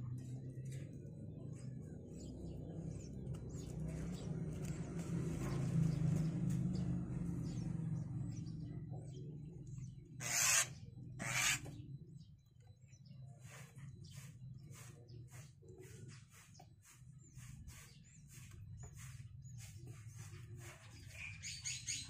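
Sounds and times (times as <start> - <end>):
faint high bird chirps: 9.6 - 22.0
loud rasping bird calls: 10.0 - 12.0, 13.4 - 22.0.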